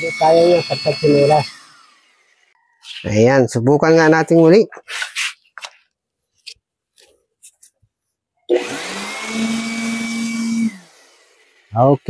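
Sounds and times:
electric air blower running: 0:00.0 - 0:02.6, 0:08.5 - 0:12.0.

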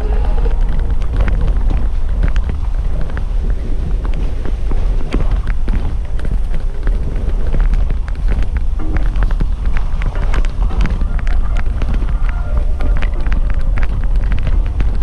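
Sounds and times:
knocks and rattles over stones: 0:00.0 - 0:15.0
vehicle rumbling on rocky road: 0:00.0 - 0:15.0.

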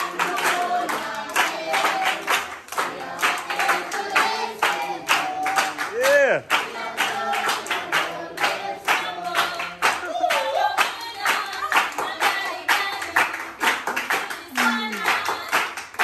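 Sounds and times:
children singing together: 0:00.0 - 0:05.8
children clapping hands: 0:00.0 - 0:16.0.

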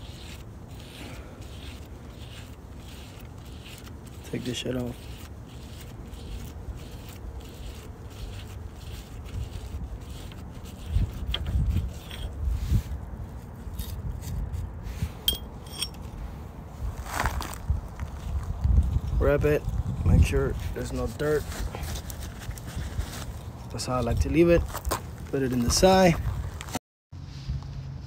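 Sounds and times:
metal parts scraping and clinking: 0:10.8 - 0:12.4, 0:15.2 - 0:16.2.

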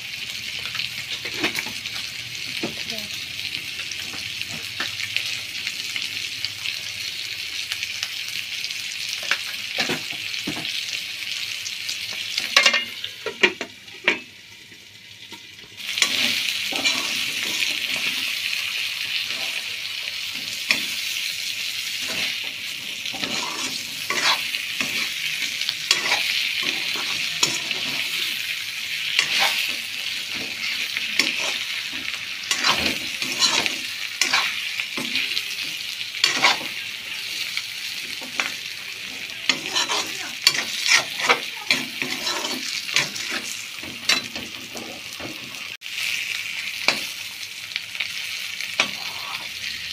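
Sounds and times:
meat and onion sizzling in oil: 0:00.0 - 0:49.9
steel spoon scraping and clinking pan: 0:12.5 - 0:13.4, 0:23.1 - 0:25.2, 0:25.8 - 0:28.2, 0:29.2 - 0:29.7, 0:32.4 - 0:35.1, 0:39.5 - 0:44.4.

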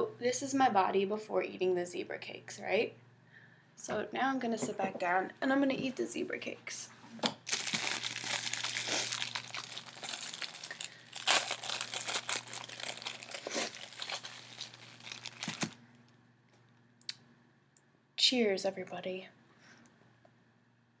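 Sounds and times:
plastic wrapper crinkling: 0:07.4 - 0:16.1.

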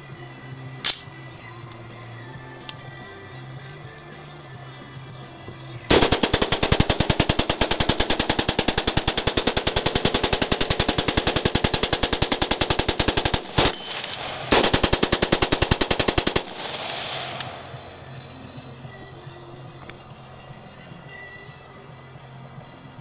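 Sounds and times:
rapid rifle gunshots: 0:05.9 - 0:17.8.

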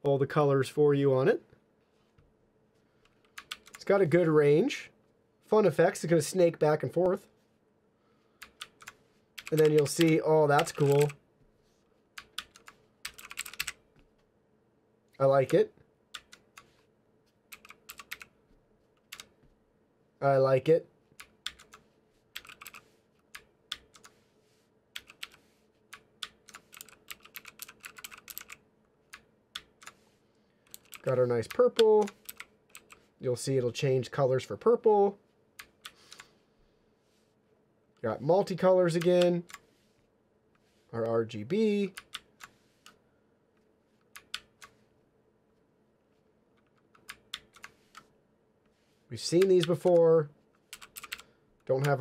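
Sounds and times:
mechanical keyboard clicking: 0:03.2 - 0:03.8, 0:08.4 - 0:11.2, 0:12.2 - 0:13.8, 0:17.5 - 0:18.3, 0:21.2 - 0:21.8, 0:22.4 - 0:24.1, 0:25.0 - 0:30.0, 0:30.7 - 0:33.0, 0:44.1 - 0:44.7, 0:46.6 - 0:48.1, 0:50.7 - 0:52.0.

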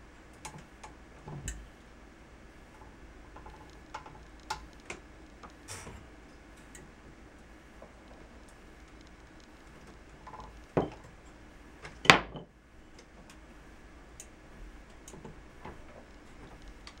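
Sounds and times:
light mechanical ticks: 0:02.7 - 0:11.4, 0:14.1 - 0:17.0.

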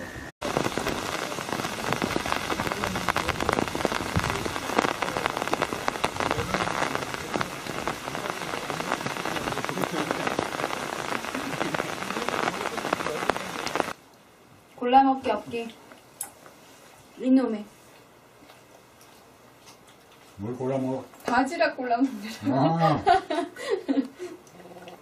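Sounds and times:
steady rain patter: 0:00.4 - 0:14.0, 0:22.8 - 0:25.0.

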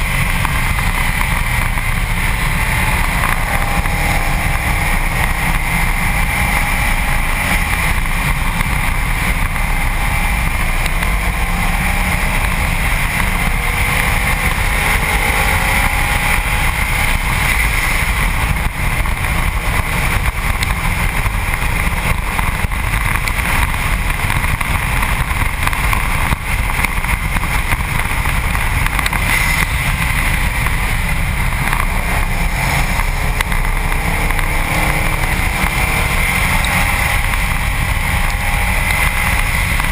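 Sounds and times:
car engine rising in pitch: 0:00.0 - 0:17.4
wind buffeting camera: 0:00.0 - 0:39.9.

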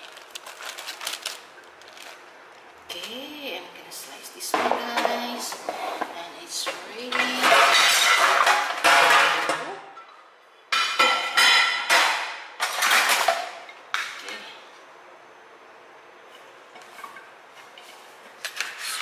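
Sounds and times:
dishes clattering and clinking: 0:04.5 - 0:13.8.

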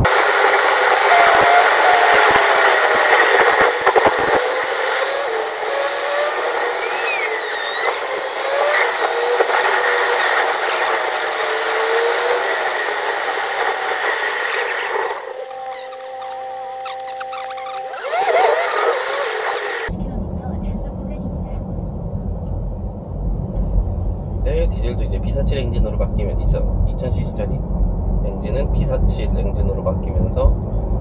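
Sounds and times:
road and wind noise in car: 0:00.0 - 0:15.4, 0:18.8 - 0:31.0
faint wavering tones: 0:00.1 - 0:19.9.

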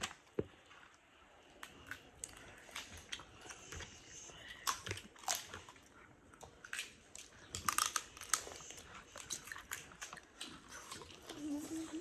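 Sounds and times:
chewing: 0:00.0 - 0:12.0
shellfish shells cracking: 0:06.5 - 0:08.7.

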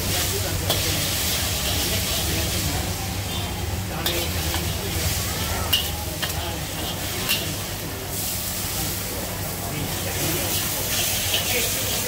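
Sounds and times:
noodles sizzling in a wok: 0:00.0 - 0:12.0
metal spatula scraping a wok: 0:00.1 - 0:08.4, 0:09.9 - 0:12.0
spatula clinking on wok: 0:05.7 - 0:07.6.

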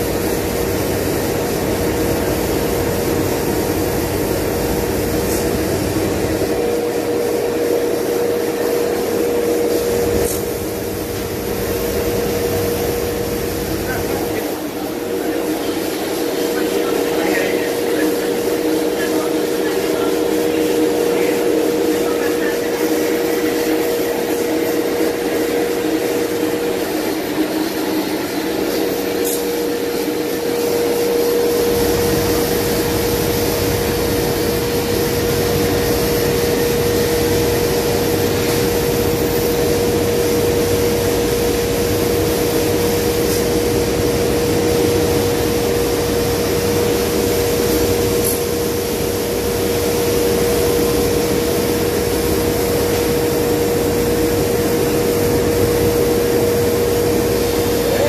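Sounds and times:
cnc router sanding whine: 0:06.0 - 0:42.8.

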